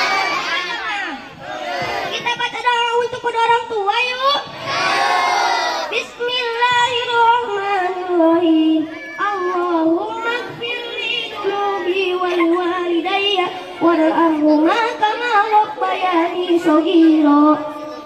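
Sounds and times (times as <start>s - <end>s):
boy singing into microphone: 5.9s - 18.0s.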